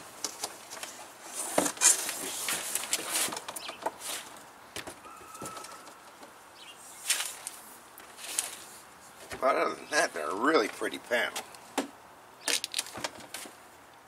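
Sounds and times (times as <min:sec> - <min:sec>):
cardboard and frame scraping: 0:00.8 - 0:04.4
brief squeak: 0:05.0 - 0:06.1.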